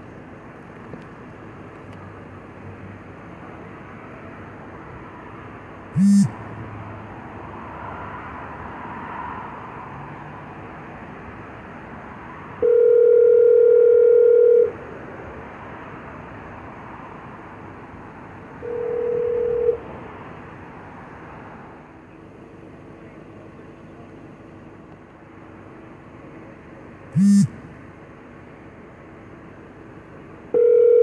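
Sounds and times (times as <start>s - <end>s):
phone ringback tone: 6.0s - 6.3s, 12.6s - 14.7s, 18.6s - 19.8s, 27.2s - 27.5s, 30.6s - 31.0s.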